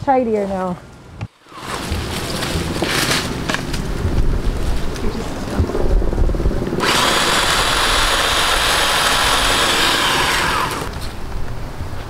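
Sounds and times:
electric pole saw running: 0:06.8 - 0:11.0.

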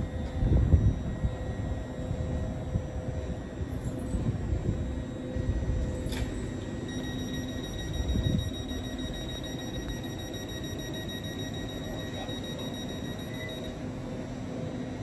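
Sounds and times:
wind buffeting microphone: 0:00.0 - 0:06.1
train electrical hum: 0:00.0 - 0:15.0.

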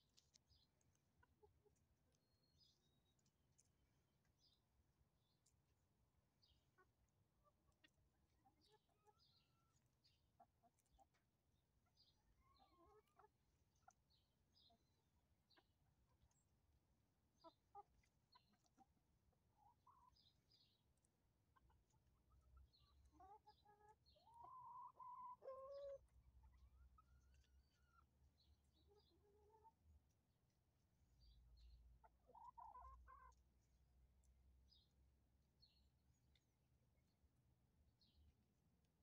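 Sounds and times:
chickens clucking: 0:00.2 - 0:01.8, 0:06.5 - 0:16.4, 0:17.3 - 0:20.7, 0:21.4 - 0:28.1, 0:28.7 - 0:29.8, 0:32.0 - 0:33.4
chicken drawn-out call: 0:23.2 - 0:26.0.

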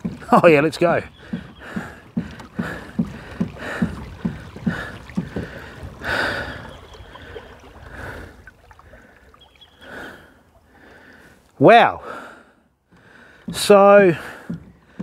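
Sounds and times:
kayak pedal creaking: 0:00.0 - 0:08.4, 0:12.9 - 0:15.0
rushing water: 0:00.0 - 0:12.2.

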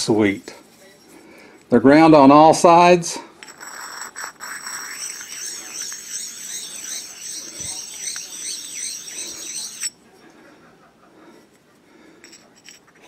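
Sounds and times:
stones sliding with squeak and hiss: 0:03.4 - 0:09.9.

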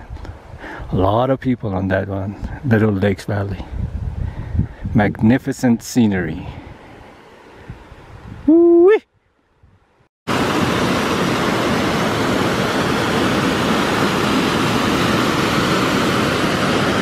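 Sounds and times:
creek water rushing over rocks: 0:10.3 - 0:17.0.

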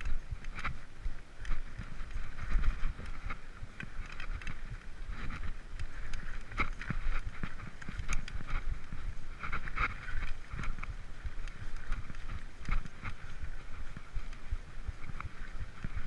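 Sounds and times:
mountain bike rumbling on dirt: 0:00.0 - 0:16.0
bike knocks and rattles: 0:01.4 - 0:16.0.

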